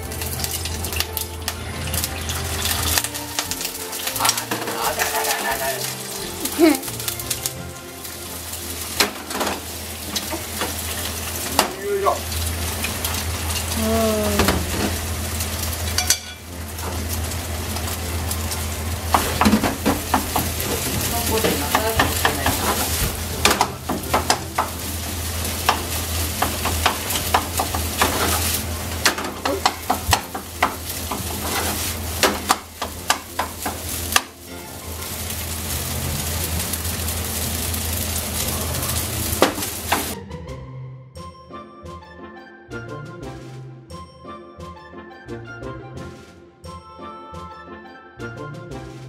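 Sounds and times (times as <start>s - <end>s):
rice and egg sizzling in a pan: 0.0s - 40.2s
wooden spatula scraping a pan: 19.1s - 34.3s
spatula tapping against a pan: 21.7s - 22.7s, 23.4s - 24.8s, 25.6s - 28.2s, 29.0s - 31.3s, 32.2s - 34.3s.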